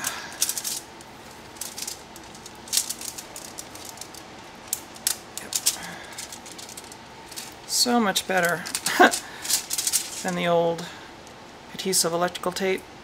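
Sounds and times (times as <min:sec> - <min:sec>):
tape crinkling and crackling: 0:00.0 - 0:11.6.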